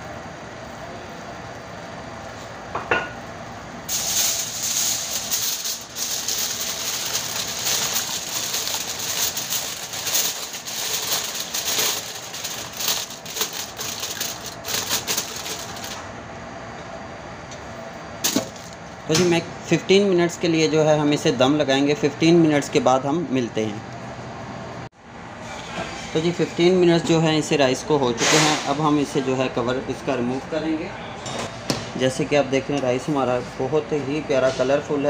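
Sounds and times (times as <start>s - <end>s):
aluminium foil crinkling: 3.9s - 16.0s.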